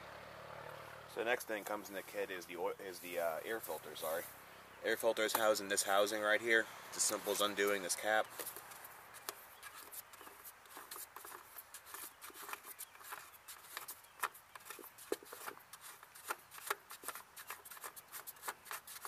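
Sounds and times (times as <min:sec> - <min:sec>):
plastic cap clicking and scraping: 0:08.2 - 0:19.0.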